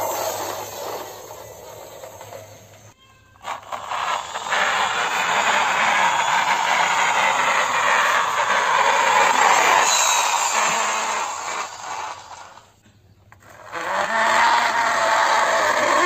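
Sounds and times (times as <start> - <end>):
toy excavator gears whirring: 0.0 - 16.0.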